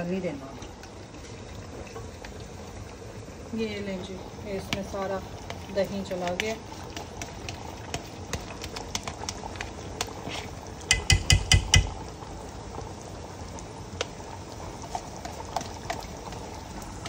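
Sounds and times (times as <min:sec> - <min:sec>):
food sizzling in a pot: 0:00.0 - 0:17.0
spoon knocking against pot: 0:10.9 - 0:12.0.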